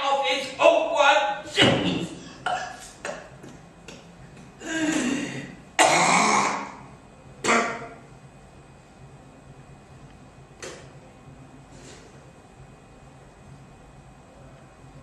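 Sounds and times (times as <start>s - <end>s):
man coughing: 1.5s - 3.3s, 4.6s - 6.8s, 7.4s - 8.0s
man clearing his throat: 1.6s - 3.3s, 4.6s - 8.0s.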